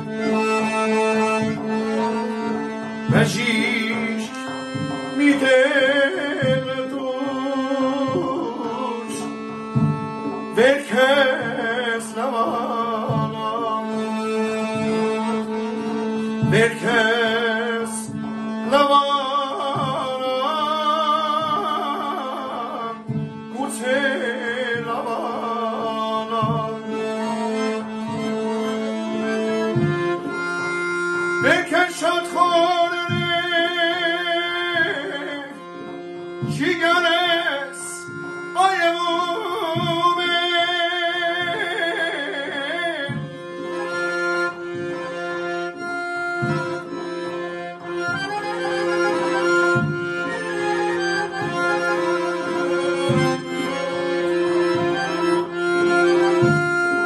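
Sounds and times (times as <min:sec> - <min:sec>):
accordion chords: 0:00.0 - 0:57.0
man singing: 0:00.3 - 0:30.3, 0:31.4 - 0:45.8.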